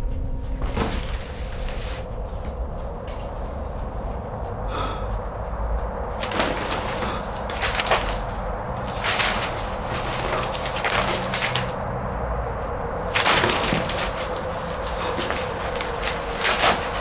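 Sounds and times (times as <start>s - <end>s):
low steady rumble: 0.0s - 17.0s
paper rustling: 0.6s - 2.1s, 6.2s - 11.8s, 13.0s - 17.0s.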